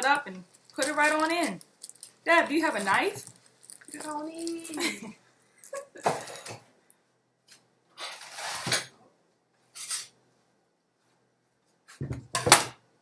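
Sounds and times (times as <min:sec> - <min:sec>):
kitchen utensils rustling clatter: 0:05.7 - 0:06.6, 0:08.0 - 0:08.9.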